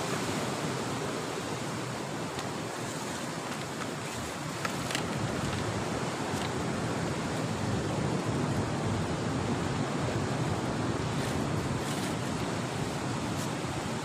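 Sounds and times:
sea waves breaking on shore: 0:00.0 - 0:14.0
wind buffeting microphone: 0:04.0 - 0:14.0.

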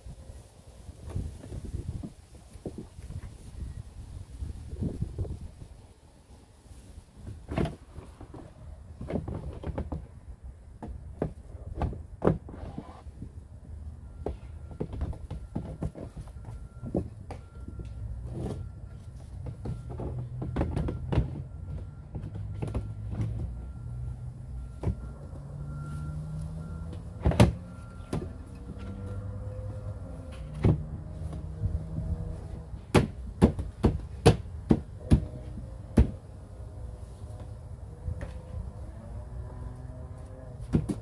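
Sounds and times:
sharp knocks on plastic: 0:32.9 - 0:36.2.

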